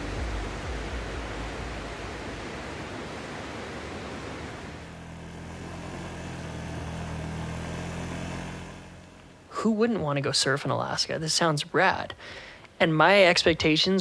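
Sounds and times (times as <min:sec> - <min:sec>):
quad bike engine running: 0:04.7 - 0:09.6.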